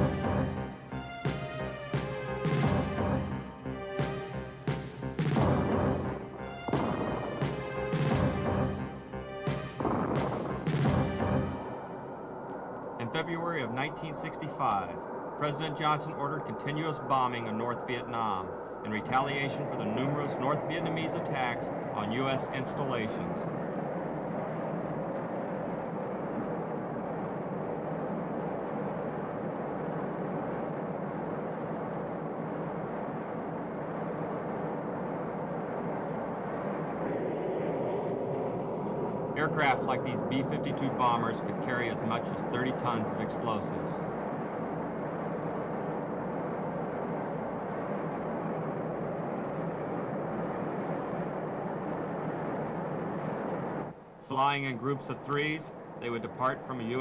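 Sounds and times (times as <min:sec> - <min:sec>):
jet engines droning in flight: 0:00.0 - 0:57.0.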